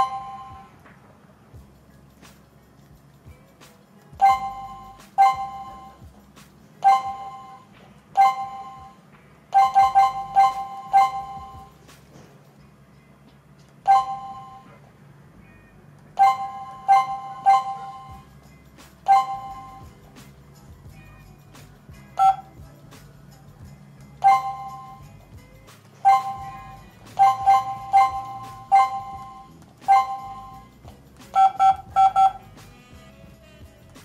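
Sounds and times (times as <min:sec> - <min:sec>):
keypad beeps: 0:00.0 - 0:00.8, 0:04.2 - 0:06.0, 0:06.8 - 0:11.7, 0:13.8 - 0:14.8, 0:16.2 - 0:18.2, 0:19.1 - 0:19.9, 0:22.2 - 0:22.6, 0:24.2 - 0:25.0, 0:26.0 - 0:26.5, 0:27.2 - 0:30.6, 0:31.4 - 0:32.4.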